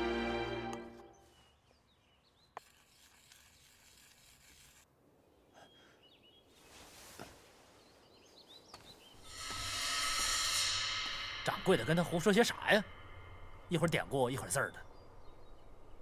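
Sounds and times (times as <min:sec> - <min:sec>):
music: 0:00.0 - 0:01.1
faint hiss: 0:09.3 - 0:16.0.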